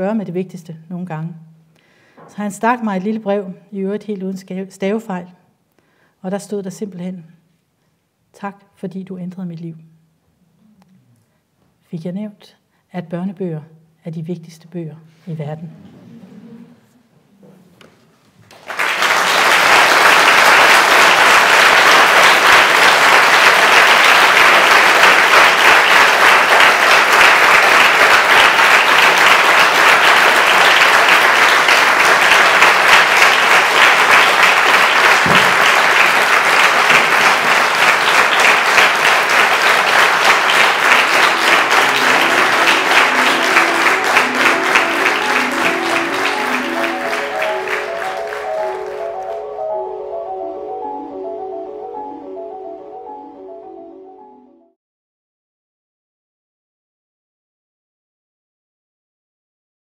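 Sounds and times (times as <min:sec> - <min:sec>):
audience applauding: 0:18.5 - 0:51.2
music with stepping melody: 0:40.5 - 0:54.7.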